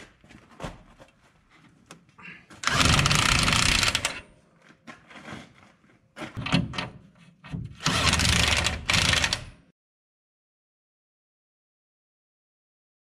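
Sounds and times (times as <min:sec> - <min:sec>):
impact wrench rattling: 0:02.6 - 0:04.2, 0:07.8 - 0:09.6.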